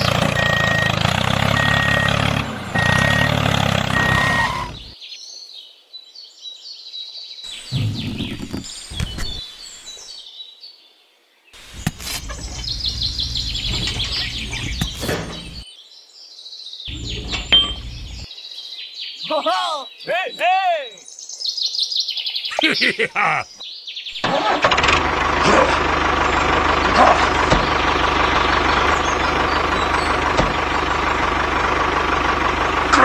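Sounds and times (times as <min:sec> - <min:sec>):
tractor engine running: 0:00.0 - 0:05.0, 0:11.6 - 0:15.6, 0:16.9 - 0:18.3, 0:24.2 - 0:33.0
birds chirping: 0:00.0 - 0:24.6, 0:25.4 - 0:32.8.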